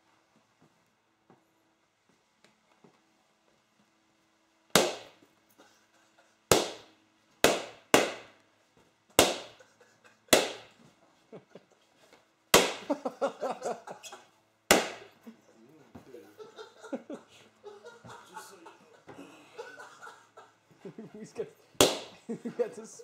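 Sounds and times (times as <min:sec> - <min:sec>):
balloons popping: 0:04.7 - 0:05.2, 0:06.5 - 0:08.4, 0:09.2 - 0:09.6, 0:10.3 - 0:10.8, 0:12.5 - 0:13.0, 0:14.7 - 0:15.2, 0:21.8 - 0:22.2.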